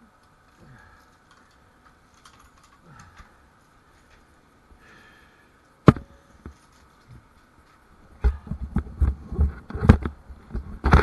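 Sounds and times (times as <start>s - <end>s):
bicycle clicks and rustling: 0.2s - 4.4s.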